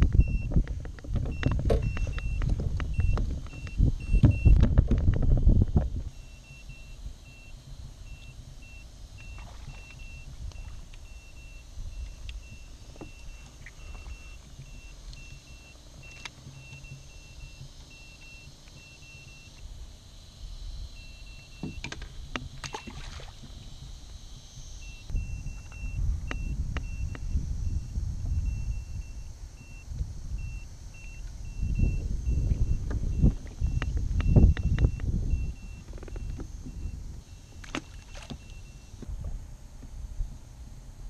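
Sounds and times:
wind rumble on microphone: 0.0s - 41.0s
fish finder short high beeps: 0.2s - 0.5s, 1.3s - 4.6s, 6.1s - 19.6s, 21.0s - 21.8s, 22.6s - 23.3s, 24.8s - 39.0s.

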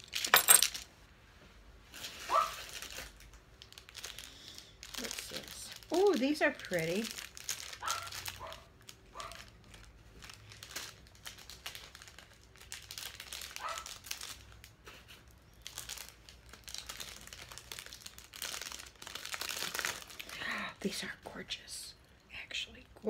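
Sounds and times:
plastic packaging crinkling: 1.9s - 20.4s.

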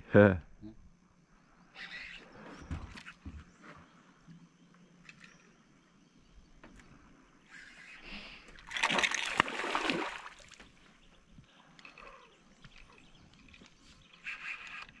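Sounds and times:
water splashing: 8.6s - 10.8s.

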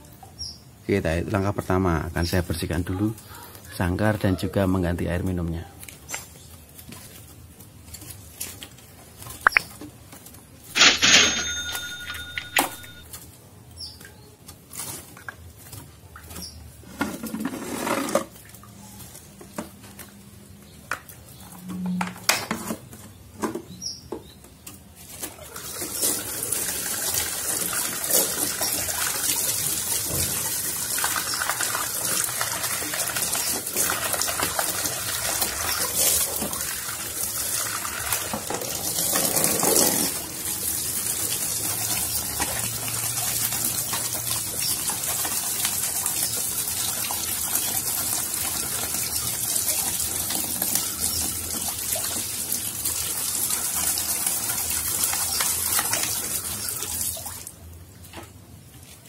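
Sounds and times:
water running from a tap: 25.4s - 57.5s.

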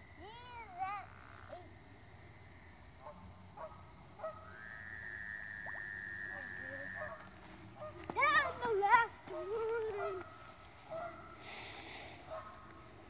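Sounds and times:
frogs chirping: 0.0s - 8.7s
frog trilling: 4.2s - 7.1s.

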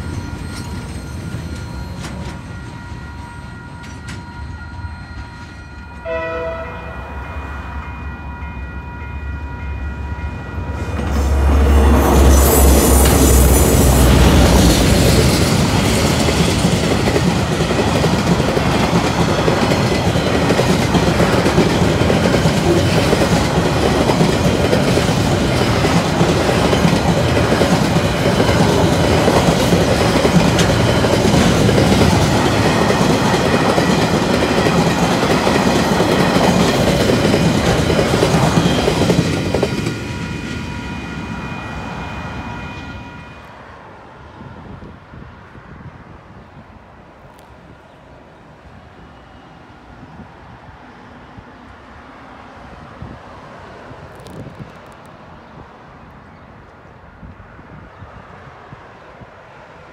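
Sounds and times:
clickety-clack of train wagons: 0.0s - 6.3s, 10.8s - 41.6s
locomotive rumble: 0.0s - 41.4s
high ringing of wheels on rails: 0.0s - 46.4s.

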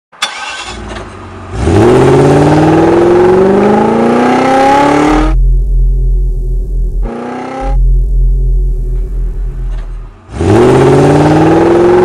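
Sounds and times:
car engine revving: 0.2s - 12.0s
low rumble: 4.1s - 10.8s.

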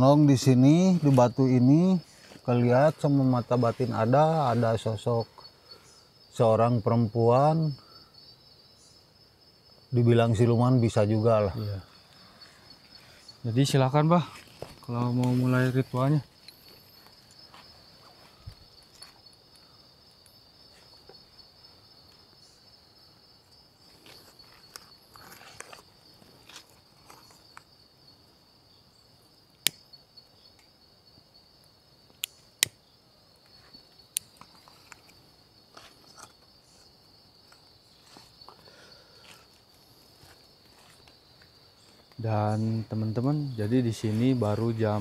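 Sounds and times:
night insects trilling: 0.0s - 45.0s
soft rustle: 14.2s - 19.2s, 39.2s - 42.1s.

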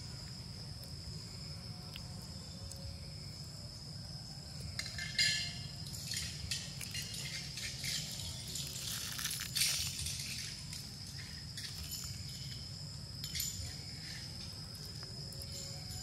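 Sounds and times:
high insect drone: 0.0s - 16.0s
crackling rustles and crunches: 4.7s - 16.0s.

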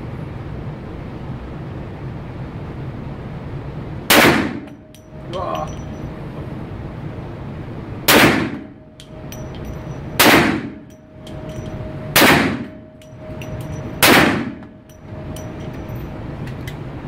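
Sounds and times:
pistol shots echoing indoors: 4.1s - 4.8s, 8.1s - 8.7s, 10.2s - 10.8s, 12.2s - 12.8s, 14.0s - 14.8s.

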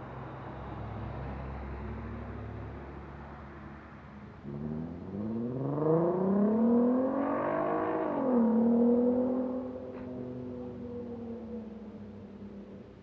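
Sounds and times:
vehicle engine accelerating: 4.4s - 11.8s.

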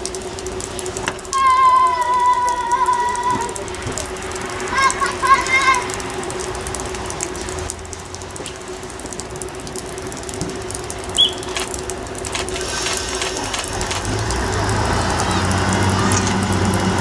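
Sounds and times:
diesel train engine humming: 0.0s - 17.0s
short high chirp: 11.2s - 11.6s.

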